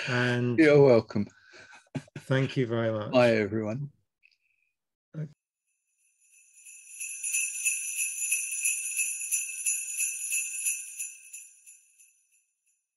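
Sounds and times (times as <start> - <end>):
jingle bells shaken: 6.0 - 12.4.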